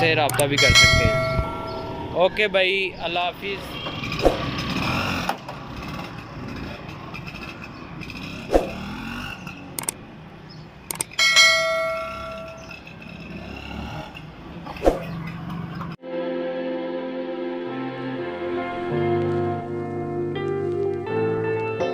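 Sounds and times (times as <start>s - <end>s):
scooter engine running: 0.0s - 2.2s, 3.6s - 15.9s
quick clicks: 0.3s - 0.8s, 9.8s - 10.0s, 10.9s - 11.2s
bell ding: 0.3s - 2.4s, 11.2s - 12.7s.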